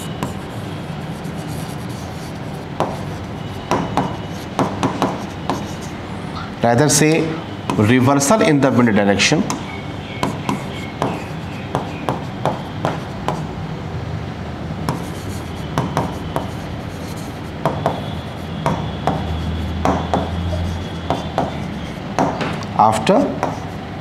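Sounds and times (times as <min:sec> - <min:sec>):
marker writing on whiteboard: 0:00.0 - 0:06.0, 0:07.0 - 0:08.8, 0:09.4 - 0:13.5, 0:14.9 - 0:24.0.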